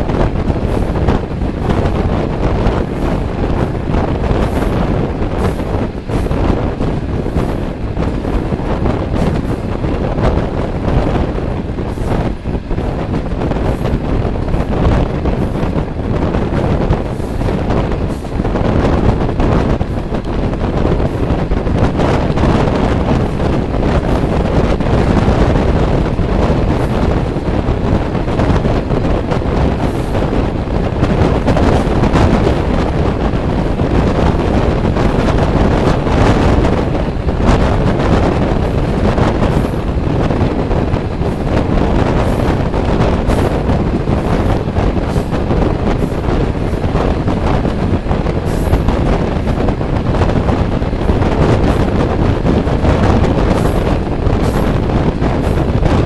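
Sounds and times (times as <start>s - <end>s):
train running on track: 0.0s - 56.0s
wind rushing over microphone: 0.0s - 56.0s.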